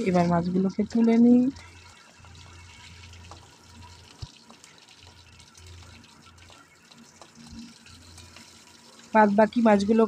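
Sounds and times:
hot oil sizzling and crackling: 0.0 - 10.0.

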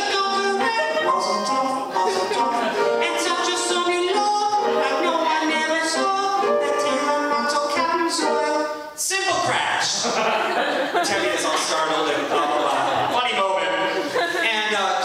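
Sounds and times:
man singing: 0.0 - 9.5
piano: 0.0 - 9.8.

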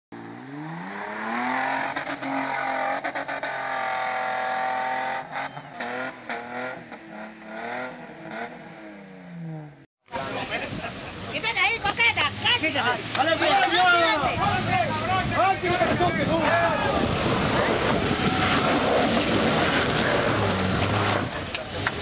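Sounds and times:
vehicle engine revving: 0.1 - 9.9, 17.2 - 21.6.

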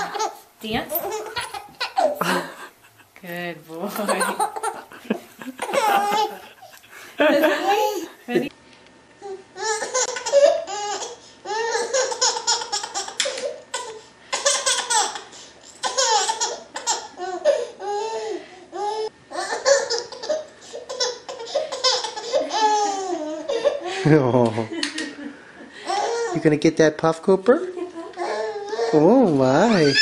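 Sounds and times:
baby laughing: 0.0 - 2.7, 4.0 - 6.8, 7.4 - 8.2, 9.6 - 24.0, 25.8 - 26.4, 27.9 - 29.0.

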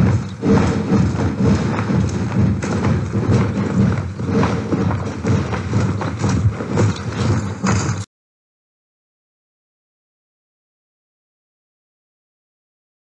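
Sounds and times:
dense rhythmic thumping: 0.0 - 8.1.

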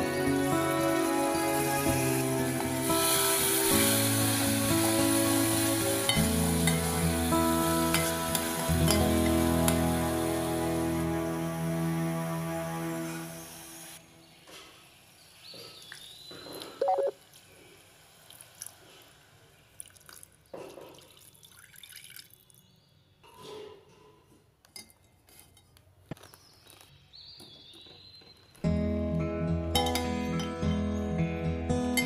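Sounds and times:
water pouring into pan: 19.8 - 22.5
water dripping: 19.8 - 22.6.

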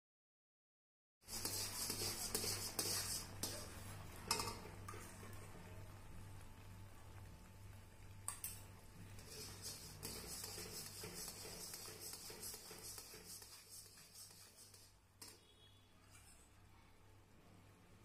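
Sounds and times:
spatula scraping thick milk: 1.2 - 3.8, 9.2 - 16.4.

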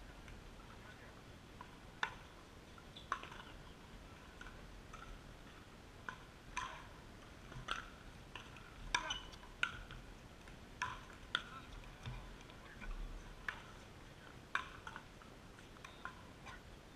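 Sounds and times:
ball bouncing on hard court: 6.0 - 13.8
paddles hitting plastic ball: 7.5 - 13.8, 14.5 - 16.2.

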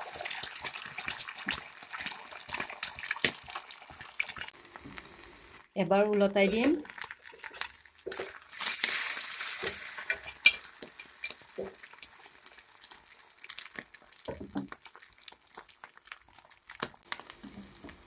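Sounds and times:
egg sizzling in oil: 0.0 - 5.8, 6.5 - 18.0
crackling frying: 0.0 - 18.0
spatula scraping and tapping pan: 9.6 - 11.8.

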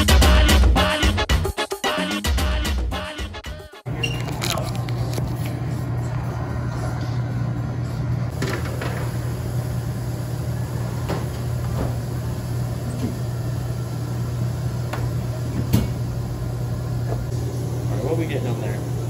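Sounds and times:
low mechanical hum: 3.9 - 19.0.

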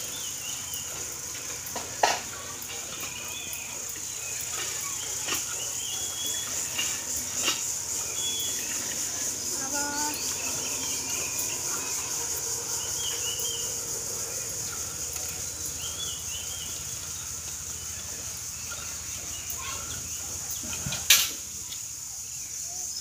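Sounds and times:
birds chirping: 0.0 - 23.0
high insect drone: 0.0 - 23.0.

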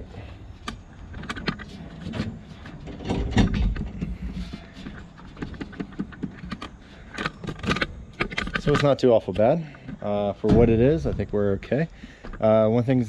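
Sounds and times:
metal rack clanking and rattling: 1.1 - 9.6, 10.4 - 11.5
knocks and thumps: 1.2 - 8.6, 9.8 - 11.4.

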